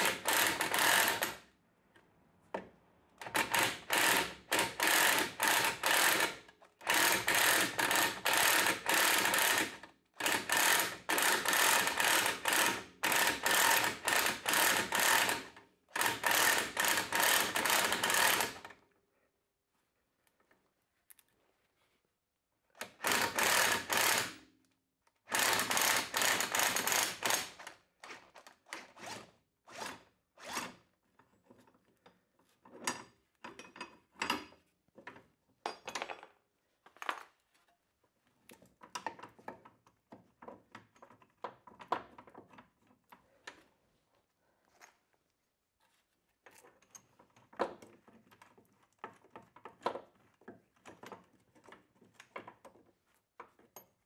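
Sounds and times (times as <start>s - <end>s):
power tool spinning in bursts: 23.0s - 24.3s, 25.3s - 27.6s.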